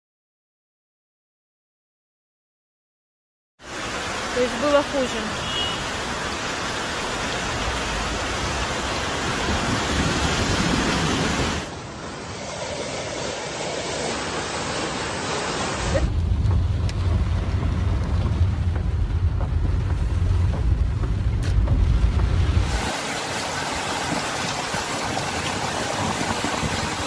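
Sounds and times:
floodwater rushing: 3.6s - 27.0s
car driving from inside: 15.9s - 22.7s.

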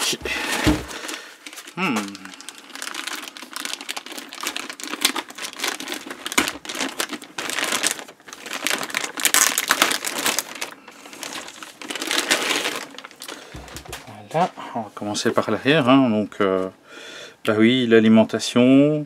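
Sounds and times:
plastic bag crinkling: 0.4s - 14.4s.

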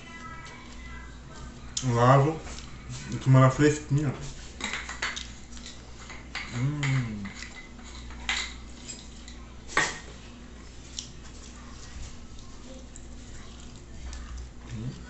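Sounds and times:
person humming mmm: 6.5s - 7.5s
wet chewing sounds: 10.8s - 15.0s.

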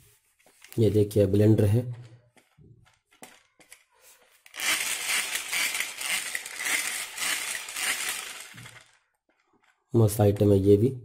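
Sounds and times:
hand-cranked blender whirring: 3.1s - 9.8s.

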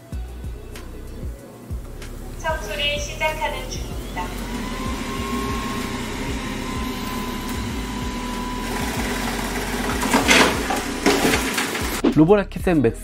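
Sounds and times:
robot vacuum motor hum and whine: 2.6s - 12.0s.

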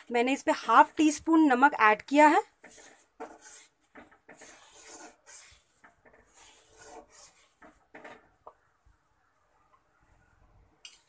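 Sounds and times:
metal spatula scraping a pan: 2.5s - 8.2s.

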